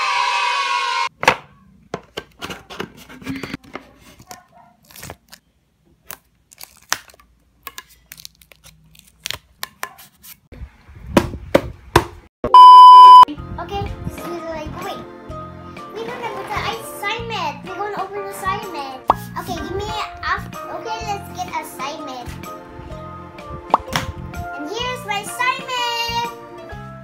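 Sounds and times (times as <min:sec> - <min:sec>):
music: 0:13.3 - 0:27.0.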